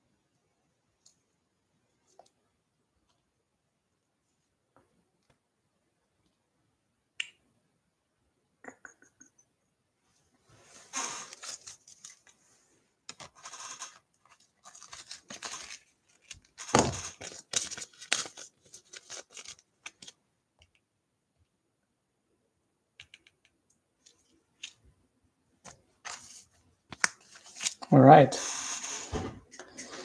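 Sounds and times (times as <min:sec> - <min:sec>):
rustling and scraping handling noise: 0:10.0 - 0:20.2, 0:25.6 - 0:30.0.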